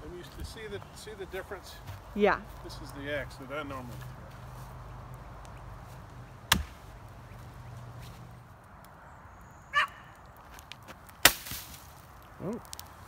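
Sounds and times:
axe chopping a log: 6.5 - 6.8, 11.2 - 11.9
axe striking a tree: 6.5 - 6.8, 11.2 - 12.0.

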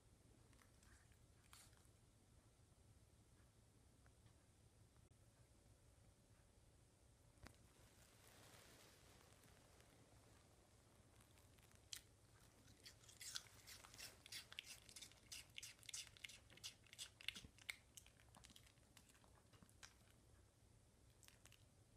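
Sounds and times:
dog crunching apple: 11.7 - 20.1.

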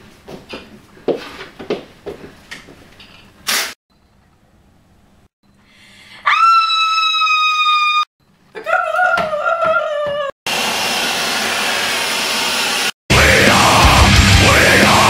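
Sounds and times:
woman screaming: 6.2 - 10.4.

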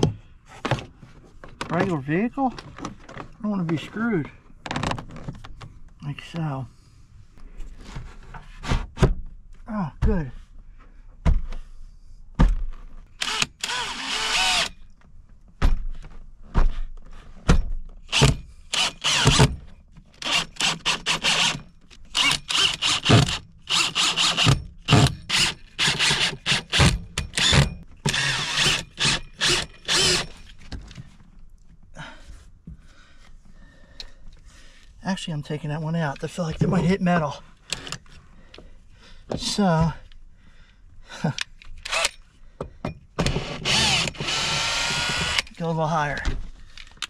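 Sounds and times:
power drill driving screws: 13.2 - 14.8, 18.1 - 19.6, 20.2 - 30.4, 41.8 - 42.2, 43.2 - 45.6.

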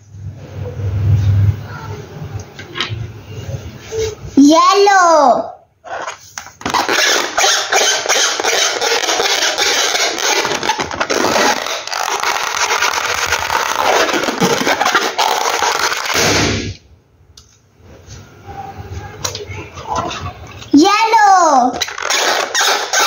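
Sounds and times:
hands rubbing a balloon squeaking: 5.8 - 16.3, 21.8 - 23.0.

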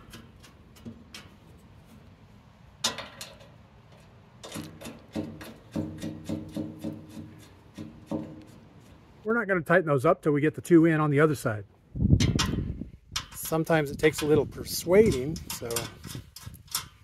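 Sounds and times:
metallic clicks of bolts threading: 15.0 - 17.0.

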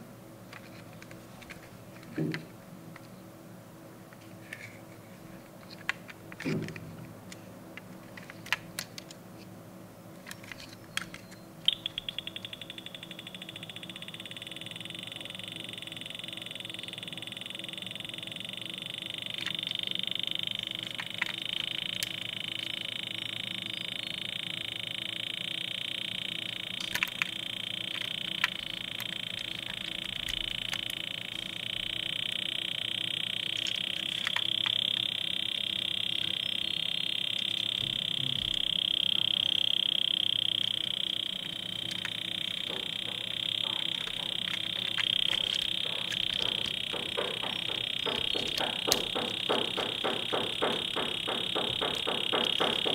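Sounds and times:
high-pitched chirring drone: 11.0 - 52.9
toy car clicks and taps: 26.8 - 31.0, 41.4 - 52.9.

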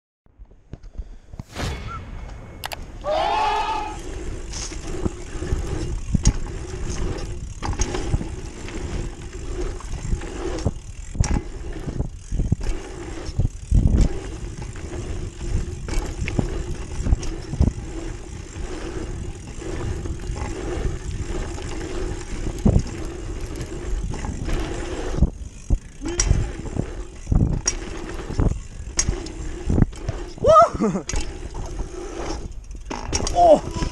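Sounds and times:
short gliding sound: 1.3 - 6.1
wind buffeting microphone: 1.3 - 33.9
tyres rumbling over dirt: 1.4 - 33.9.

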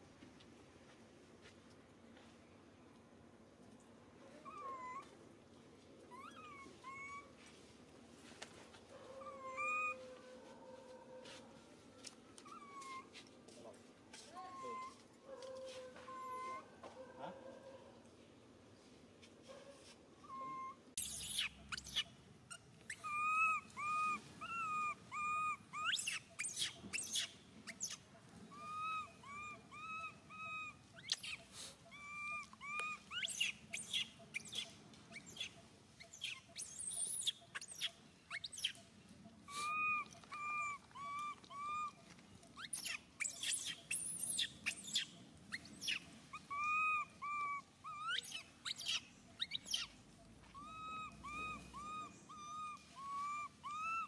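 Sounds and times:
baby monkey crying: 4.4 - 5.0, 6.1 - 7.3, 9.2 - 10.0, 16.1 - 16.7, 22.9 - 38.8, 39.5 - 42.0, 42.6 - 49.9, 50.5 - 54.0.

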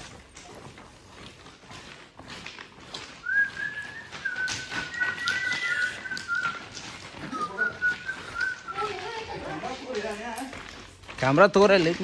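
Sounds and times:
footstep clicks: 0.0 - 12.0
person whistling a tune: 3.2 - 9.0.

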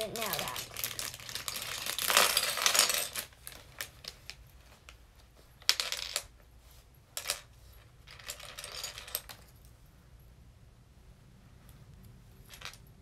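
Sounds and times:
lego bricks clicking and clattering: 0.0 - 4.1
plastic bag crinkling: 0.0 - 4.1.

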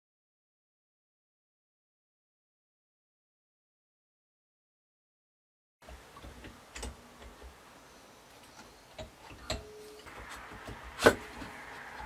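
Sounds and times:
faint metal clicks and taps: 5.8 - 7.6.

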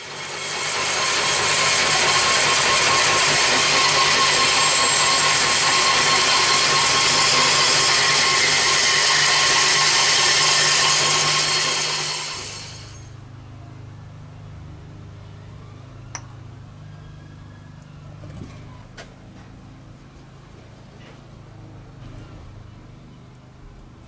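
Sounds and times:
power tool running with hiss: 0.0 - 13.2.

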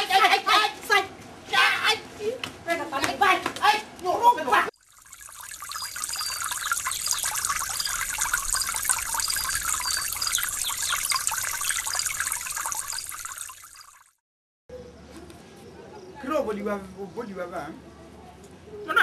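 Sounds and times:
trickling running water: 4.8 - 14.2
short high chirps: 4.9 - 14.1.

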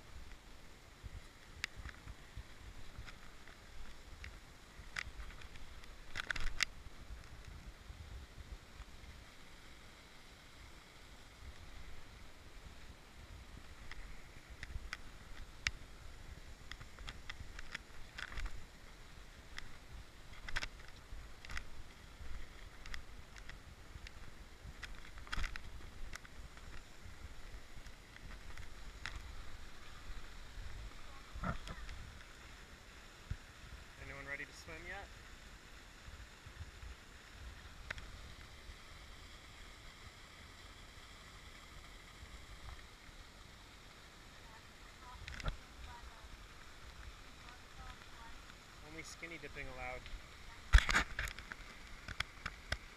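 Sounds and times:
waterfall falling into pool: 0.0 - 52.9
wind rumble on microphone: 0.9 - 9.4.

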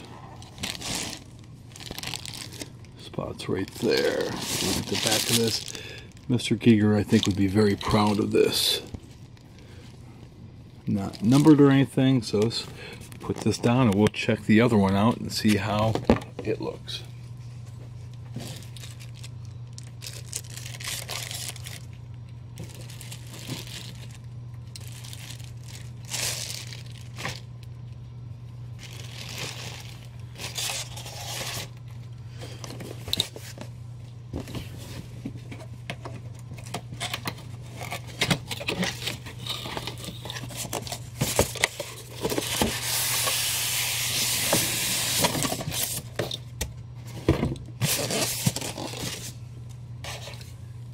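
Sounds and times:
packaging crinkling and tearing: 0.0 - 9.7, 10.9 - 11.9, 18.3 - 27.9, 28.7 - 31.9, 36.6 - 46.2, 47.8 - 49.4
low steady hum: 0.0 - 50.9.

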